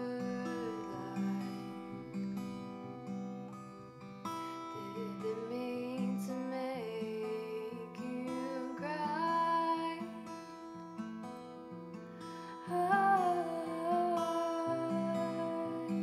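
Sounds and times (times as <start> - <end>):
woman singing: 0.0 - 2.6, 4.8 - 10.4, 12.5 - 16.0
acoustic guitar playing slowly: 0.0 - 16.0.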